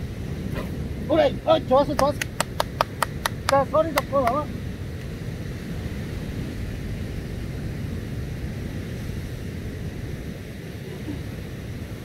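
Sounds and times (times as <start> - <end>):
surf breaking on beach: 0.0 - 12.0
wind buffeting microphone: 0.0 - 12.0.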